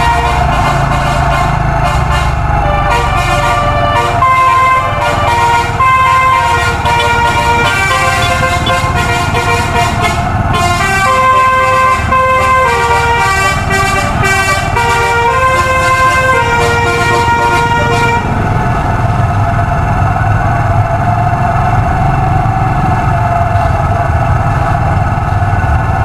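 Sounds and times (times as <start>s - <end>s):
musical air horn playing tune: 0.0s - 18.4s
low rumble: 15.4s - 26.0s.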